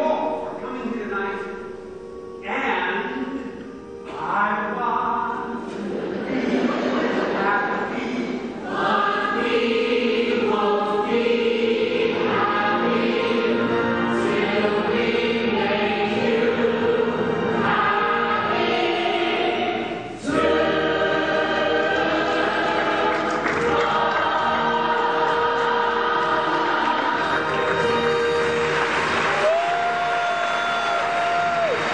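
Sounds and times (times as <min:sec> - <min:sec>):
many voices singing in chorus: 0:05.7 - 0:29.5.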